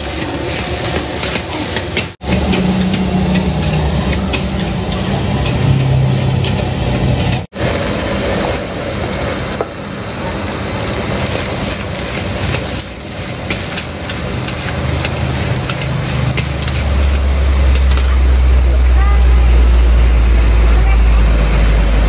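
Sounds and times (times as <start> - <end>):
spatula scraping a wok: 0.0 - 7.5, 11.3 - 18.4
rice sizzling in a wok: 0.0 - 22.0
low rumble: 2.2 - 7.5.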